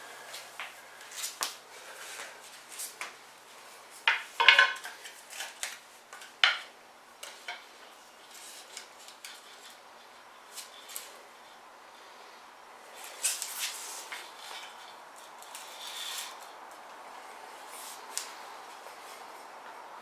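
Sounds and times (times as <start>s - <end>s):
wooden parts clacking on concrete: 4.0s - 7.8s.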